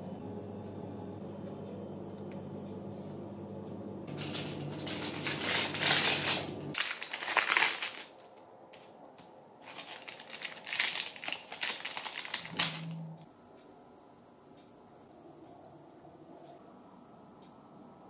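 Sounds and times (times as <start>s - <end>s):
baking paper rustling: 4.1s - 13.1s.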